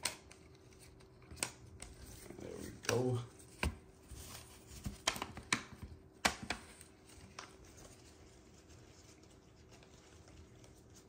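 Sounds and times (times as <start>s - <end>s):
cards clicking and tapping: 0.0s - 2.0s, 2.7s - 3.8s, 4.8s - 7.6s.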